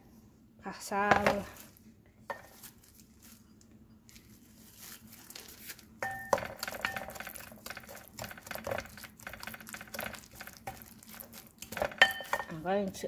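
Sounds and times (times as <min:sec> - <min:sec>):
spatula scraping glass bowl: 0:06.0 - 0:13.0.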